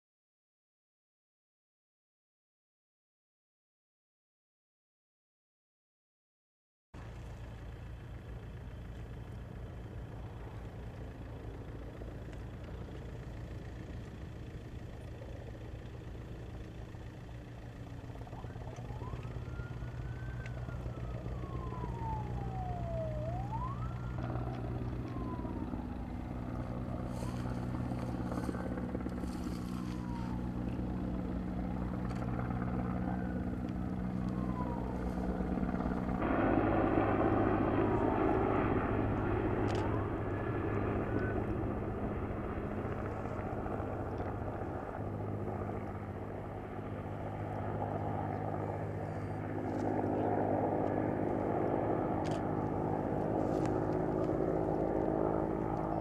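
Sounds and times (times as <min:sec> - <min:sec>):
low engine drone: 0:07.0 - 0:56.0
emergency siren wailing: 0:16.6 - 0:56.0.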